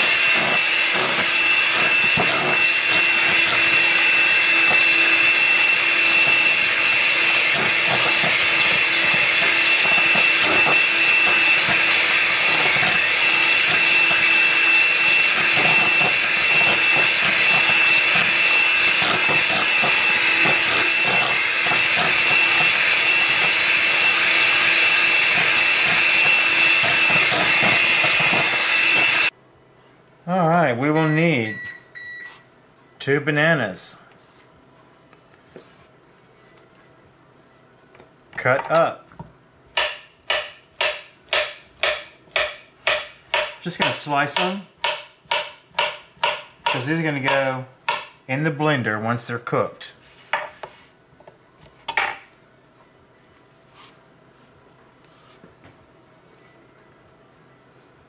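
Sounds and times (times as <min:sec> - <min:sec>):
beaters whipping in bowl: 0:00.0 - 0:29.3
electric hand mixer whirring: 0:00.0 - 0:29.4.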